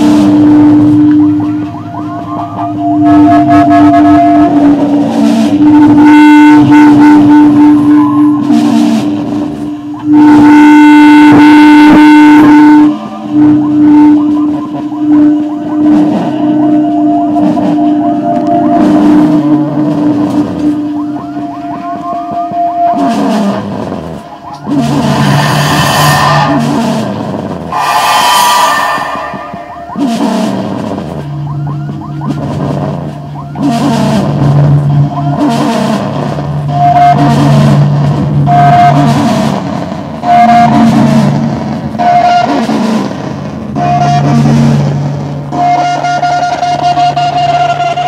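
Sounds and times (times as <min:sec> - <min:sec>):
steady droning tone: 0:00.0 - 0:35.4
squealing pitch glides: 0:12.8 - 0:34.2
dense wash of noise: 0:23.6 - 0:31.4
higher held tone: 0:24.5 - 0:30.6
short high tone: 0:27.7 - 0:30.4.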